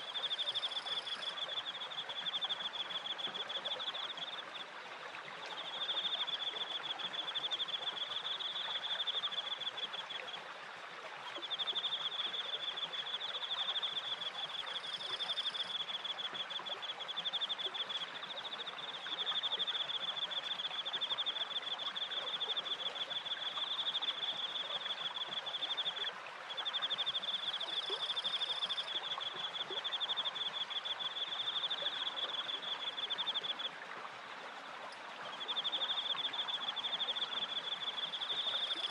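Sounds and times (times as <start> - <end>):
cricket chirping trill: 0.0 - 2.9
flowing water rushing: 0.0 - 38.9.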